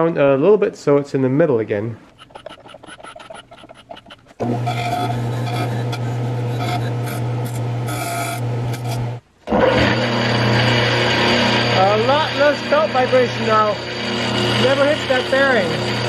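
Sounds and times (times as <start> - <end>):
tool scraping spinning pulley: 2.0 - 9.1, 10.6 - 16.0
quiet ticking: 2.1 - 4.4
electric motor humming: 2.1 - 16.0.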